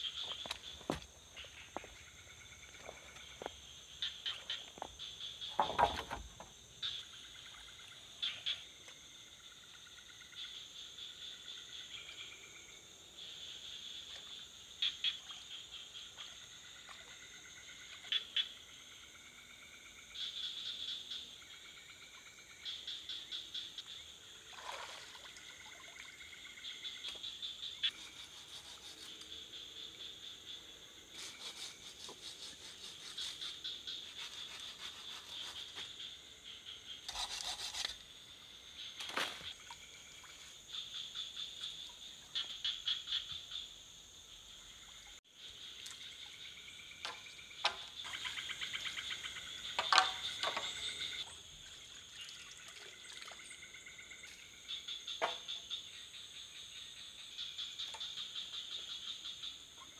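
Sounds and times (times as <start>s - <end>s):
insects and frogs chorus: 0.0s - 59.9s.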